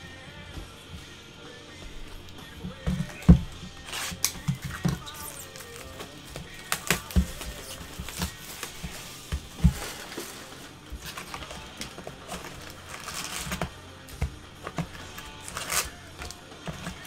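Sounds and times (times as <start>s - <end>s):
plastic wrapping crinkling: 3.9s - 13.7s, 14.6s - 17.0s.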